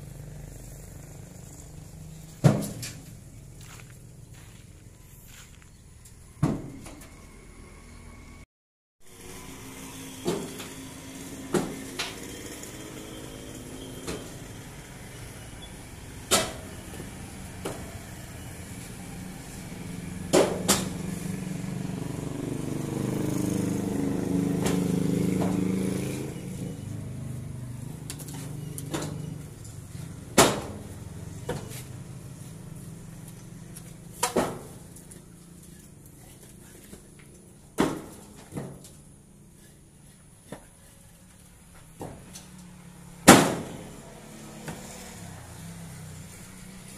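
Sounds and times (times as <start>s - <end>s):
vehicle engine hum: 0.0s - 8.5s, 9.1s - 46.9s.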